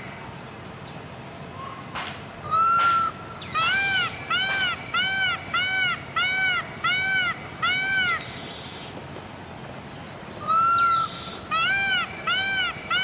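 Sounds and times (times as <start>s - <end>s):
long peafowl call: 2.5s - 8.3s, 10.4s - 13.0s
peafowl honking calls: 2.5s - 8.9s, 10.4s - 13.0s.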